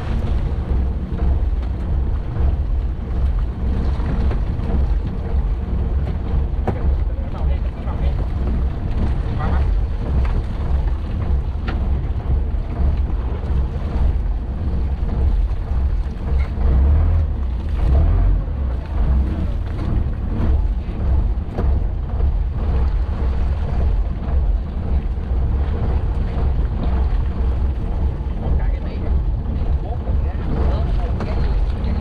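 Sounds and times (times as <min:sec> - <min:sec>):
boat and water noise: 0:00.0 - 0:32.0
wind buffeting microphone: 0:00.0 - 0:32.0.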